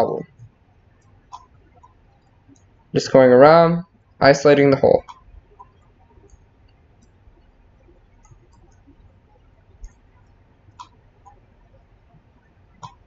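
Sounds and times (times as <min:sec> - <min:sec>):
computer mouse clicks: 0:05.0 - 0:13.0.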